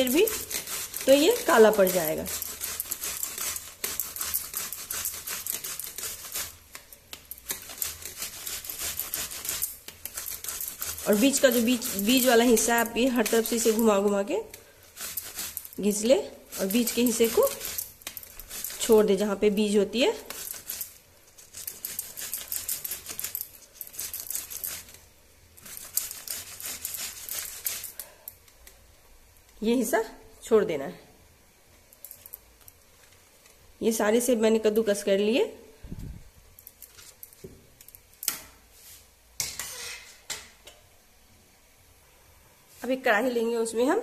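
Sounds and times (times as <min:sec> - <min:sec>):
apple grating on metal grater: 0:00.0 - 0:14.3, 0:14.9 - 0:19.4, 0:20.1 - 0:25.0, 0:25.6 - 0:28.1.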